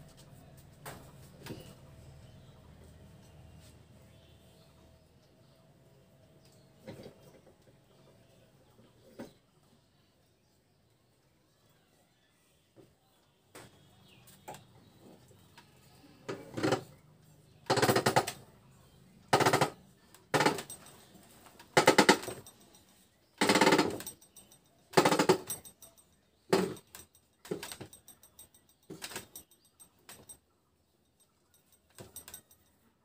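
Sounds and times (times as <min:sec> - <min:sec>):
screw press metal grating and creaking: 0:15.6 - 0:17.0, 0:17.7 - 0:18.4, 0:19.3 - 0:22.7, 0:23.4 - 0:30.3.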